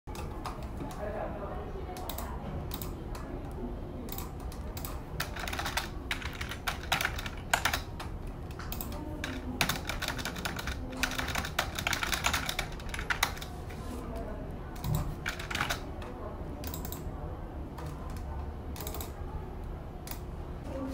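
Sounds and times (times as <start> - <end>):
typing on computer keyboard: 2.0 - 3.0, 4.1 - 13.6, 14.8 - 17.1, 17.8 - 19.2.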